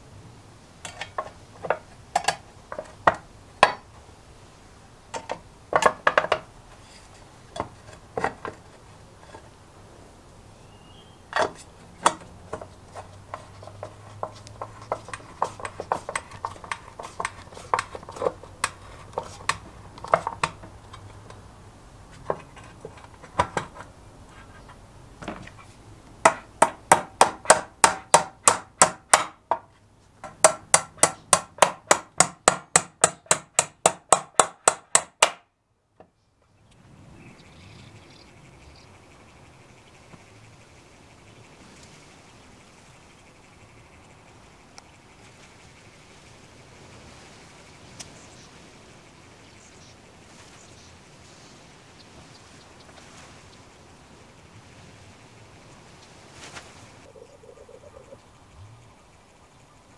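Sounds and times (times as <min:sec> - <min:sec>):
tool handling clicks and taps: 0:00.8 - 0:03.8, 0:11.3 - 0:21.4.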